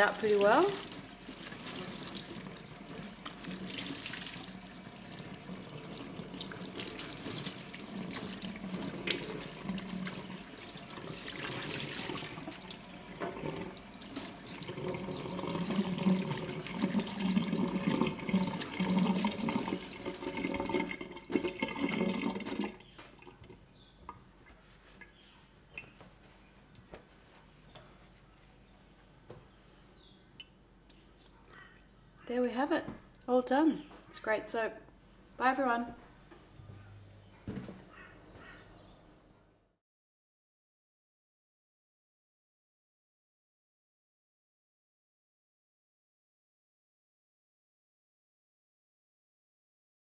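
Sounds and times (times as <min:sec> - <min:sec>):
dishcloth rinsed and wrung: 0:00.0 - 0:23.6.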